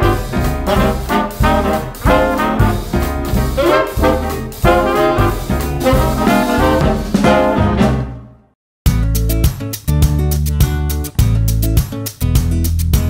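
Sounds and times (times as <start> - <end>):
swing music with brass horns: 0.0 - 9.4.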